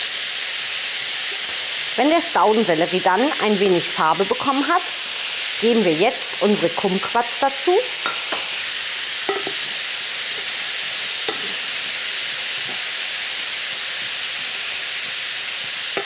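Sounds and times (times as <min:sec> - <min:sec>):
food sizzling in frying pan: 0:00.0 - 0:16.0
wooden spoon knocking: 0:08.0 - 0:08.5, 0:09.3 - 0:09.7, 0:11.3 - 0:11.6.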